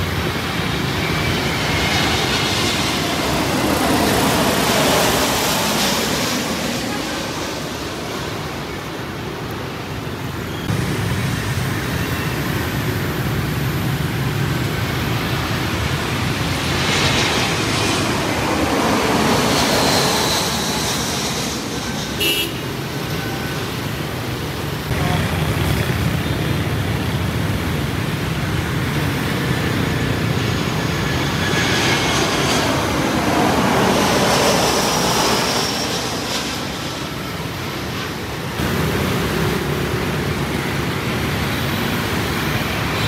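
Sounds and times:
city road traffic: 0.0s - 43.0s
jet airliner passing overhead: 0.0s - 43.0s
car horn toot: 22.2s - 22.6s.

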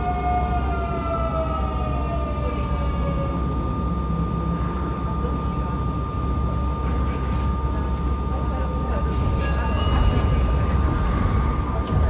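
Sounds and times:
wheels rumbling on track: 0.0s - 12.0s.

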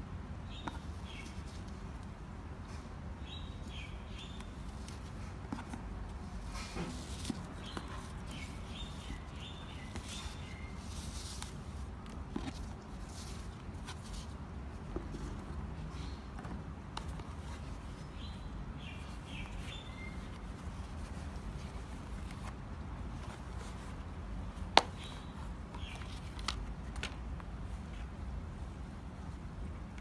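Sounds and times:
birds chirping: 7.5s - 11.0s, 17.9s - 20.4s.

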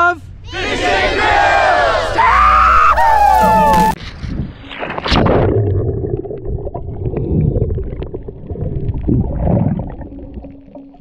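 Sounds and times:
underwater water gurgling: 4.9s - 11.0s.

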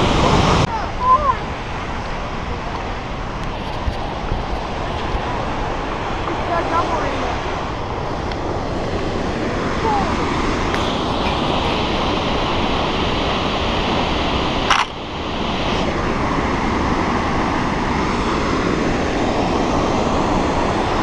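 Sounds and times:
waterfall roaring: 0.0s - 21.0s.

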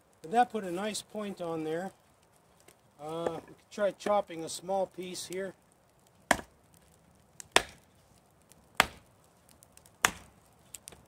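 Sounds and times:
hatchet chopping wood: 6.3s - 6.5s, 7.4s - 7.8s, 8.8s - 9.0s, 10.0s - 10.3s.

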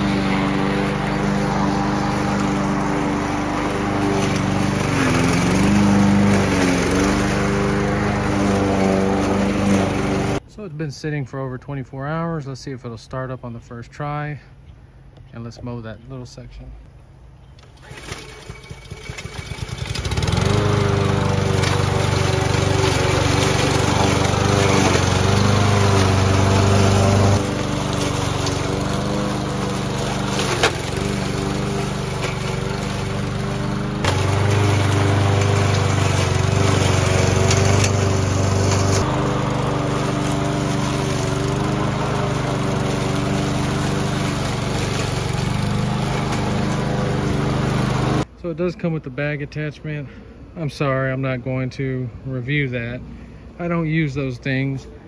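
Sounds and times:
lawn mower engine running: 0.0s - 10.4s, 17.6s - 48.4s.

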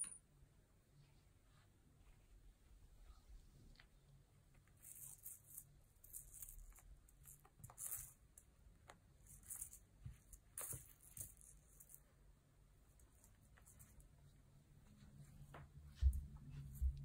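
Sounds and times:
kitten playing with toys: 4.5s - 12.2s, 12.9s - 14.3s.

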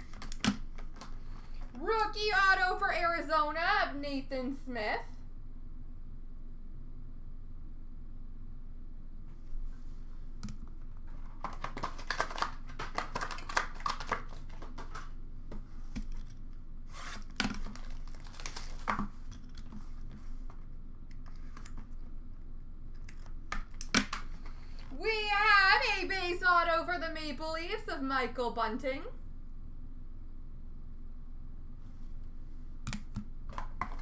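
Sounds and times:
plastic card sleeves clicking and rustling: 0.0s - 1.7s, 10.5s - 15.2s, 17.1s - 22.0s.

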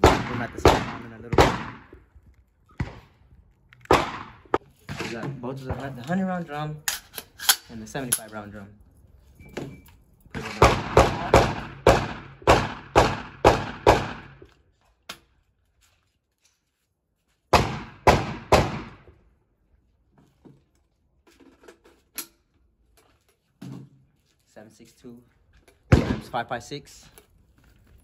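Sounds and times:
gunshots: 0.0s - 2.0s, 3.9s - 5.2s, 10.4s - 14.4s, 17.5s - 19.0s, 25.9s - 26.5s.

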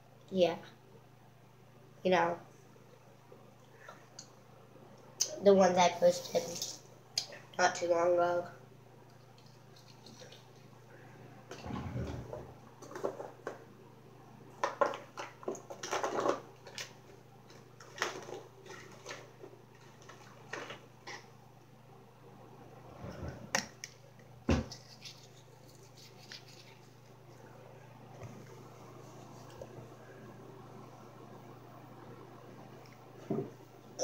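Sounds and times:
low steady hum: 0.0s - 34.0s
toothbrush scrubbing teeth: 9.1s - 10.7s, 24.7s - 27.2s.

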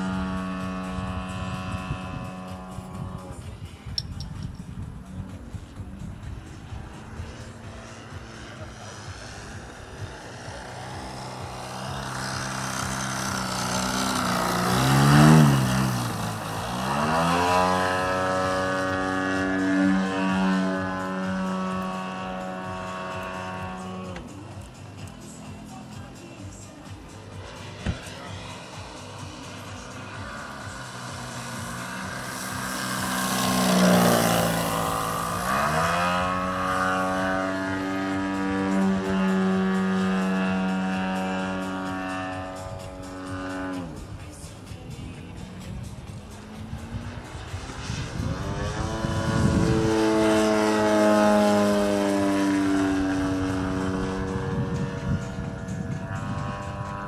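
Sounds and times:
model plane engine and propeller: 0.0s - 57.0s.

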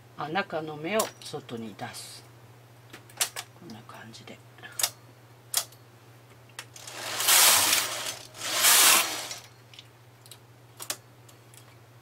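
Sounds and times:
knitting machine carriage sliding: 6.8s - 9.4s.

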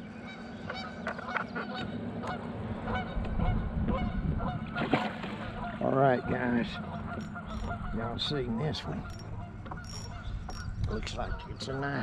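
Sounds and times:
geese honking: 0.2s - 11.8s
low rumble: 2.5s - 5.8s.

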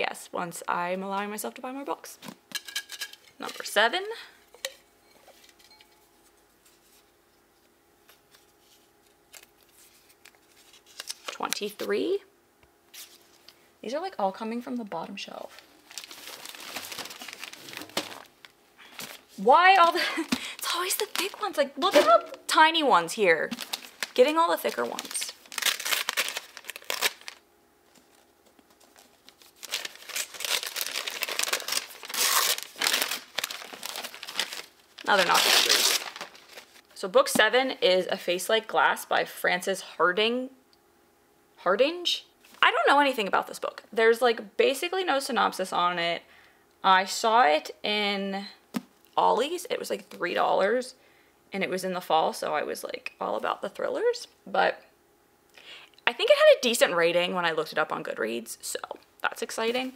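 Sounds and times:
paper crinkling: 8.0s - 11.9s, 15.5s - 22.2s, 23.5s - 36.9s
paper slips rustling: 15.5s - 22.4s, 23.4s - 27.4s, 28.7s - 36.8s
tape peeled back: 23.5s - 36.8s.

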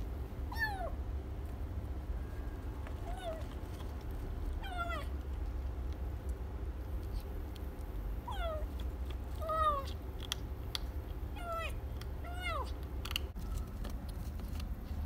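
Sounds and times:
kitten meowing: 0.5s - 1.0s, 3.0s - 3.6s, 4.6s - 5.2s, 8.2s - 8.8s, 9.4s - 10.0s, 11.3s - 12.8s
kitten crunching dry kibble: 2.6s - 15.0s.

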